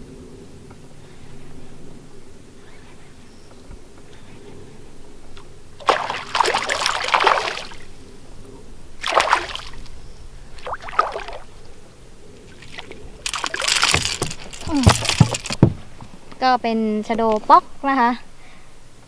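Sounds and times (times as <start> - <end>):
fish thrashing and splashing: 5.8 - 7.9, 9.0 - 9.9, 10.6 - 11.5, 12.4 - 15.6.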